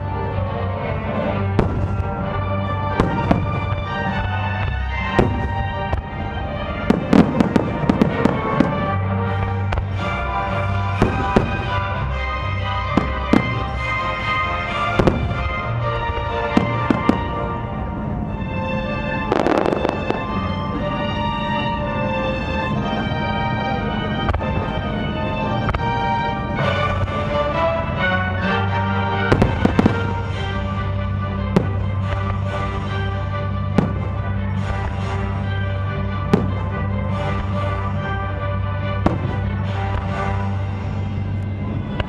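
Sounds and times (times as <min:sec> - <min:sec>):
music: 0:00.0 - 0:42.0
fireworks bursting: 0:01.2 - 0:23.3, 0:24.0 - 0:35.5.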